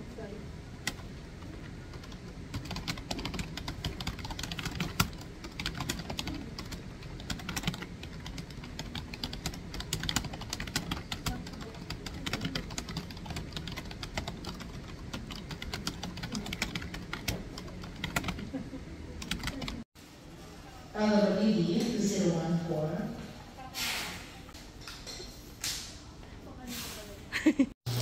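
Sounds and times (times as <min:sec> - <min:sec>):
typing on computer keyboard: 0:01.9 - 0:18.4, 0:19.2 - 0:19.8.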